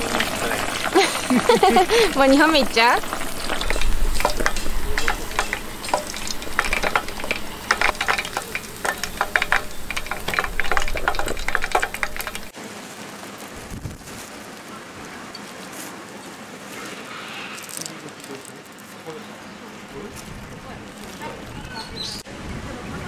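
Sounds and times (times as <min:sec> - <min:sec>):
oil sizzling with pops: 0:00.0 - 0:12.6.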